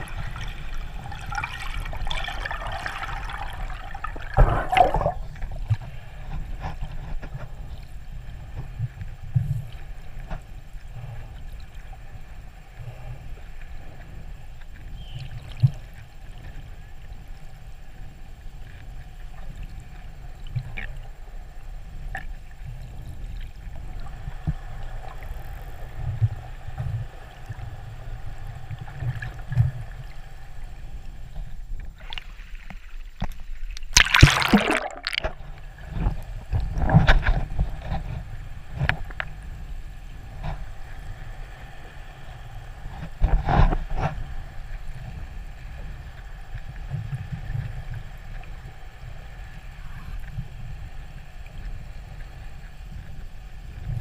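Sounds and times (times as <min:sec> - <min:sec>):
underwater rushing bursts: 0:00.0 - 0:05.5, 0:33.9 - 0:36.1
underwater low rumble: 0:00.0 - 0:54.0.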